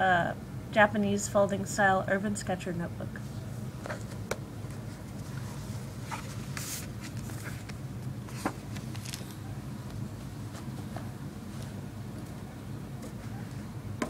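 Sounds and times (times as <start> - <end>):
steady low hum: 0.0 - 14.0
paper rustling: 3.9 - 9.4.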